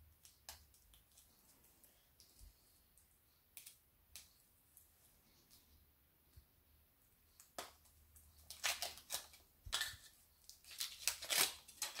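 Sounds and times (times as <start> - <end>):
wrapper crinkling: 8.4 - 12.0.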